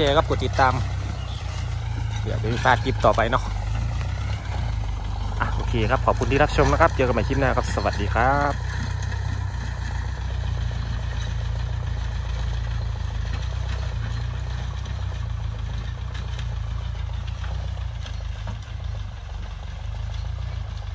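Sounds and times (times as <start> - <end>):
tractor diesel engine droning: 0.0 - 20.9.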